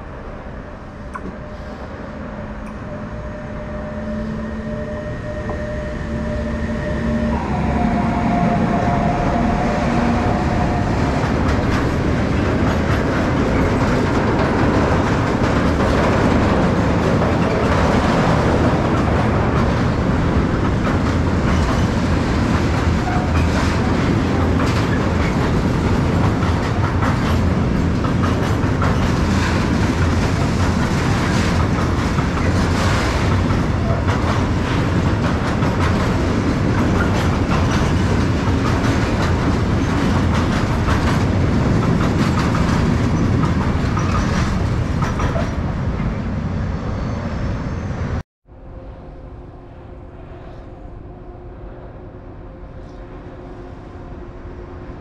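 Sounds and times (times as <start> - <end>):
freight train wagons rumbling: 0.0 - 48.2
wheels clacking over rail joints: 10.7 - 46.2.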